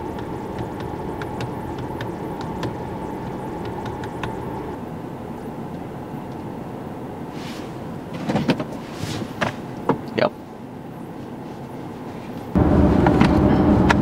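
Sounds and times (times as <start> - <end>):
car engine running: 0.0 - 8.8, 12.5 - 14.0
ventilation fan running: 0.0 - 14.0.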